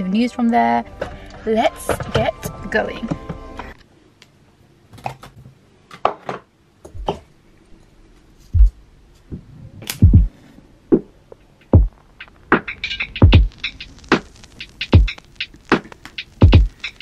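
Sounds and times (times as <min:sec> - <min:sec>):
match being struck: 0:12.2 - 0:17.0.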